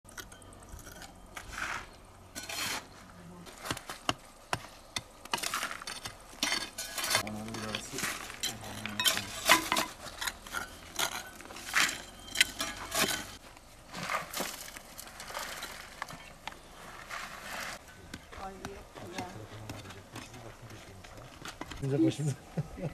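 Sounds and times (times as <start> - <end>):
pick and trowel scraping soil: 0.1 - 17.9.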